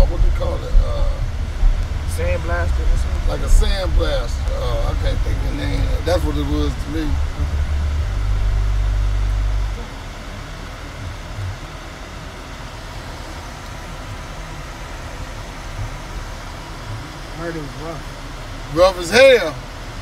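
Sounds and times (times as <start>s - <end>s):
car cabin road rumble: 0.0s - 20.0s
car engine hum: 0.0s - 20.0s.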